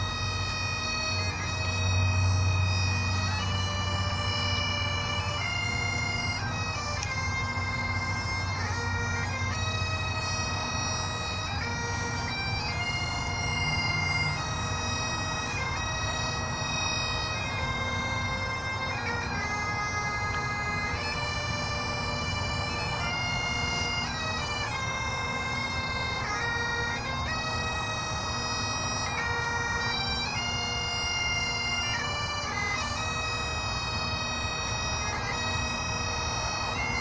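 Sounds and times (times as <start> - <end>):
bagpipes playing slow tune: 0.0 - 37.0.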